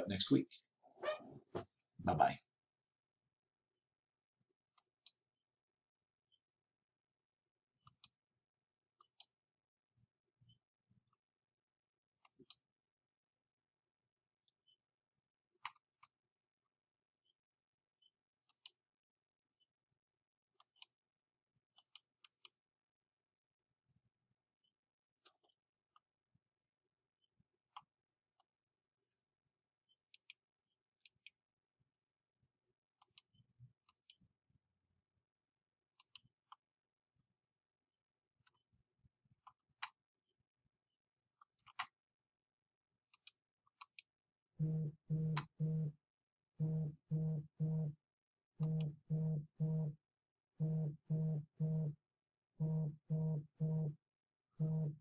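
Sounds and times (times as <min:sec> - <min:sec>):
computer mouse clicking: 0:07.8 - 0:08.2, 0:18.5 - 0:18.8, 0:20.6 - 0:21.0, 0:33.0 - 0:34.2, 0:36.0 - 0:36.3, 0:41.4 - 0:42.0, 0:43.1 - 0:44.1
low steady electronic tone: 0:44.6 - 0:46.0, 0:46.6 - 0:48.0, 0:48.6 - 0:50.0, 0:50.6 - 0:52.0, 0:52.6 - 0:54.0, 0:54.6 - 0:55.0.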